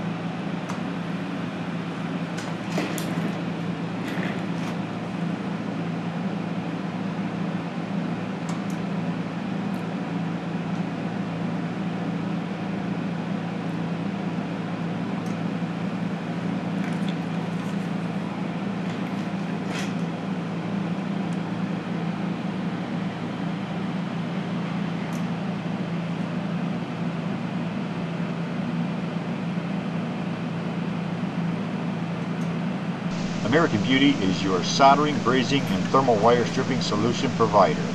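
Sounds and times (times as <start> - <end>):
low electrical hum: 30.4 - 37.9.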